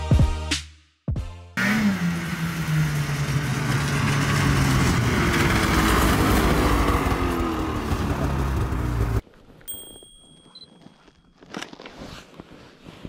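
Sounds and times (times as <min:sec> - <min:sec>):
snowmobile engine running: 0:01.6 - 0:09.2.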